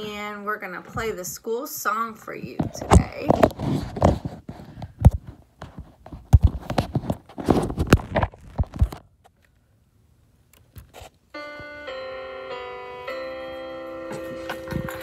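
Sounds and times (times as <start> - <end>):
cloth rustling: 2.7 - 9.0.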